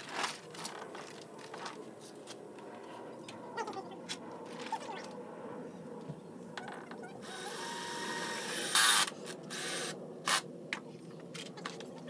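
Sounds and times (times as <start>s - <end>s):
power drill driving screws into metal: 7.3s - 10.4s.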